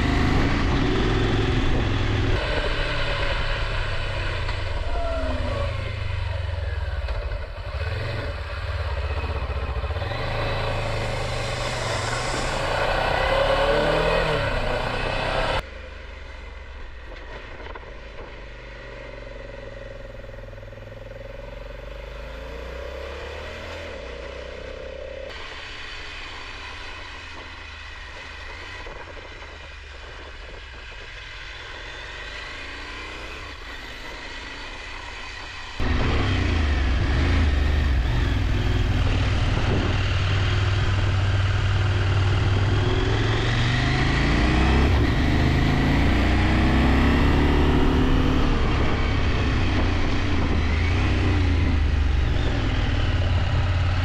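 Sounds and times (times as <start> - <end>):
wind noise: 0.0 - 7.0, 27.2 - 32.3, 35.8 - 54.0
motorcycle engine running: 0.0 - 15.6, 24.0 - 54.0
road noise: 0.0 - 54.0.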